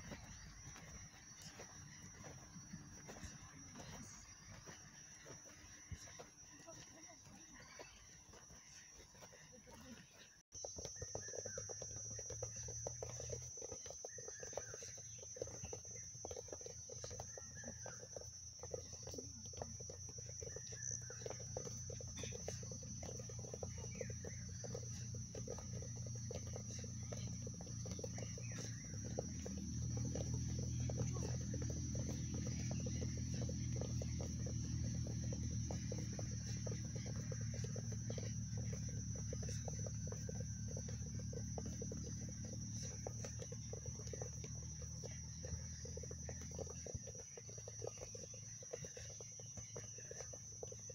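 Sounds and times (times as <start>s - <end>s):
feet tapping footballs on grass: 0.0s - 50.9s
high insect drone: 10.6s - 50.9s.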